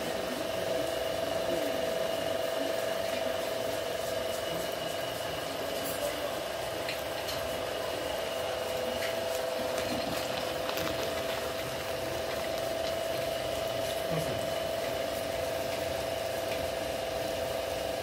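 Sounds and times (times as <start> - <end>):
stone mill motor humming: 0.0 - 18.0.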